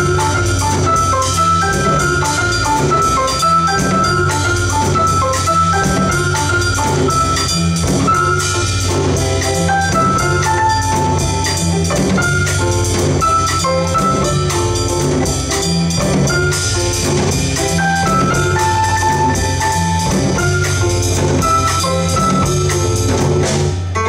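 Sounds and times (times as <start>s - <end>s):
drums on cymbals: 0.0s - 24.0s
plucked double bass: 0.0s - 24.0s
upright piano playing jazz: 0.0s - 24.0s.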